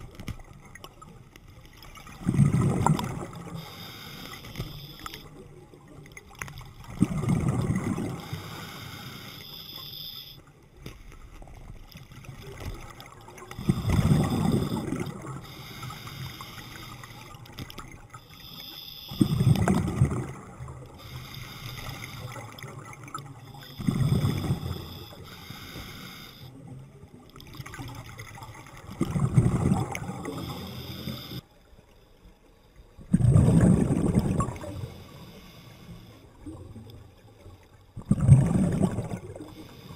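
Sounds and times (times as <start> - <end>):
exhaled bubbles bursting: 2.0 - 3.6, 5.3 - 8.4, 12.4 - 15.4, 19.2 - 20.9, 22.2 - 25.1, 27.4 - 30.6, 33.1 - 34.9, 38.0 - 39.6
regulator inhalation hiss: 3.5 - 5.3, 8.2 - 10.4, 13.8 - 17.2, 18.3 - 19.5, 21.0 - 22.4, 23.5 - 26.5, 30.3 - 31.4, 34.8 - 36.2.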